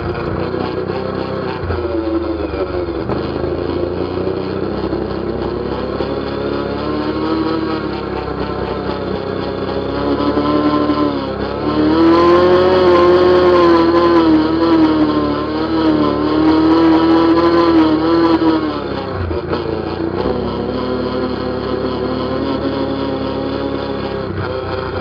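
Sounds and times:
atv engine running: 0.0 - 25.0.

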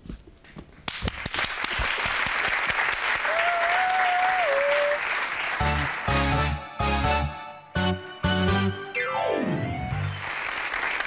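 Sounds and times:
audience applauding: 0.9 - 6.7, 9.7 - 11.0
music: 5.6 - 10.4.

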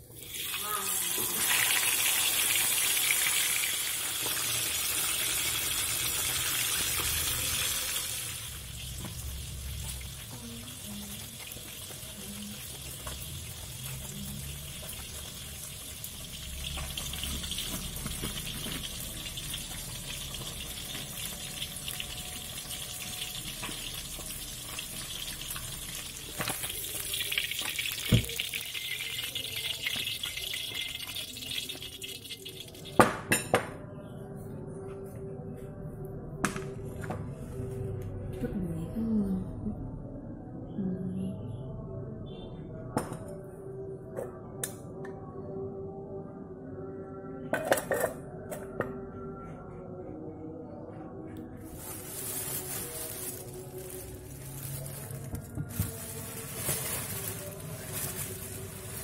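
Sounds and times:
hot oil sizzling in a wok: 0.0 - 32.8.

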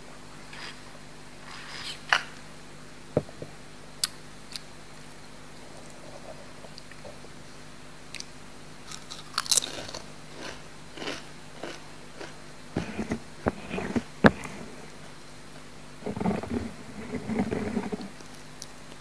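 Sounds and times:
crunching tortilla chips: 8.9 - 12.4.

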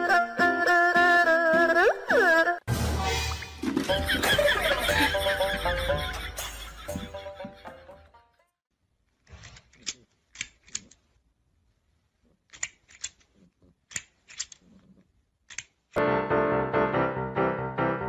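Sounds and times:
piano background music: 16.0 - 18.0.

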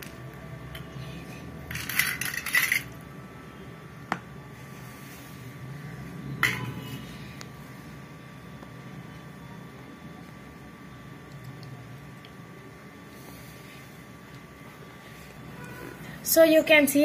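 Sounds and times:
small hard objects clinking: 1.7 - 3.0.

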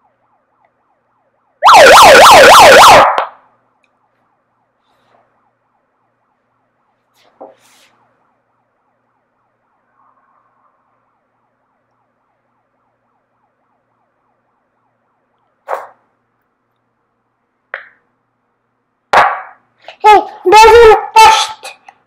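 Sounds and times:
megaphone siren sweeping: 1.6 - 3.2, 20.0 - 21.6.

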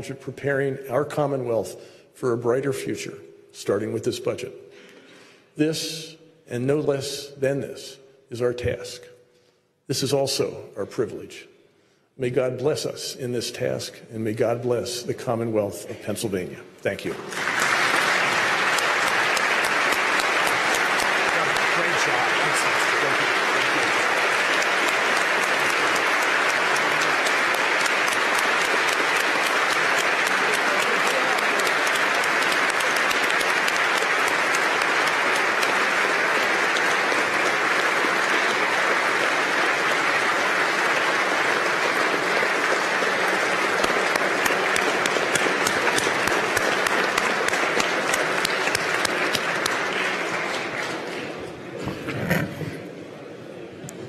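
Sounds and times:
audience applauding: 17.0 - 52.5.

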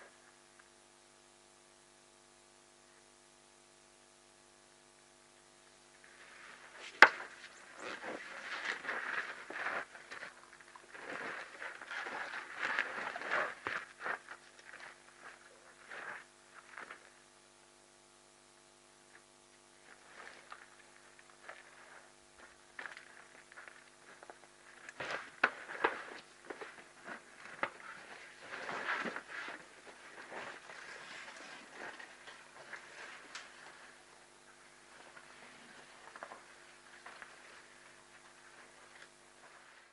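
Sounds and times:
brush crackling and scuffling: 6.0 - 17.2, 19.8 - 39.9
feet scuffing on gravelly ground: 6.6 - 17.0.

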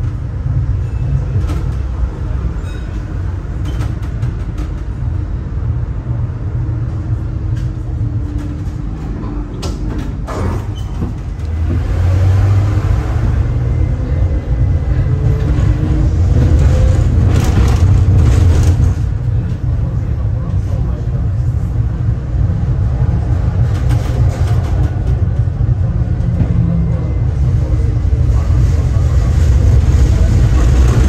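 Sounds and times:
tram rumbling on rails: 0.0 - 31.0.

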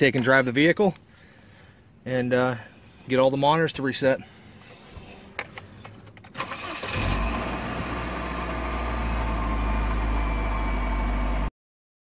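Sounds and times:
car engine cranking: 5.4 - 9.3.

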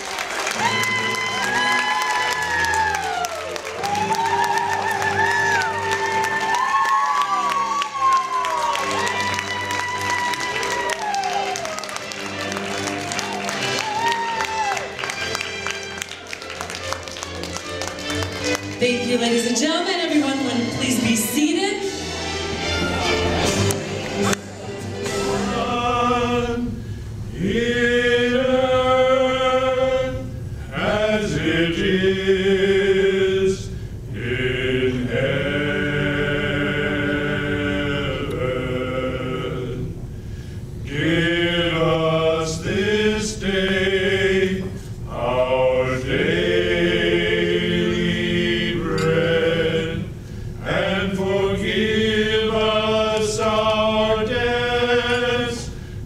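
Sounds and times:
men singing a cappella: 25.2 - 40.0, 40.8 - 55.8.

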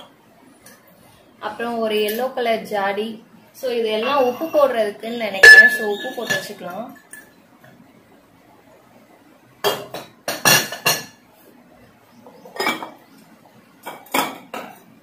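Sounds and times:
ceramic jars clinking: 5.4 - 6.5.

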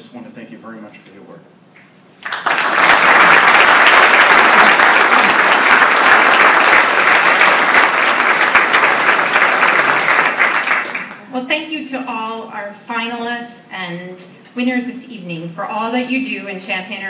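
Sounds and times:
audience applauding: 2.2 - 11.3.

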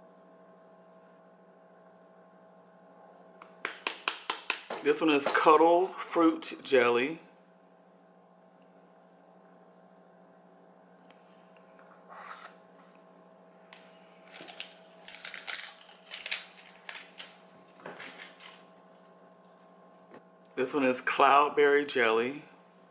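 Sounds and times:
low electrical hum: 0.0 - 22.9
plastic jars clicking and rustling: 14.3 - 18.6.

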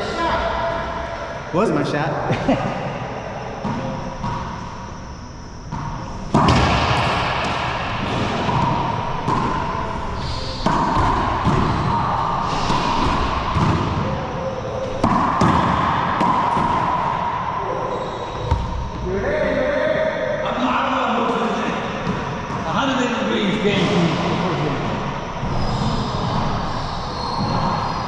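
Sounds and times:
rubber ball smacking racquet and walls: 5.7 - 17.4, 18.4 - 19.0.

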